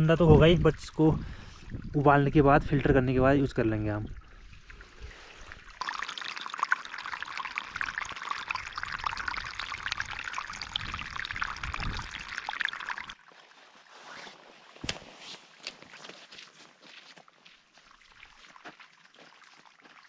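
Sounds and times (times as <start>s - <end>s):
water splashing into a container: 0.0s - 13.3s.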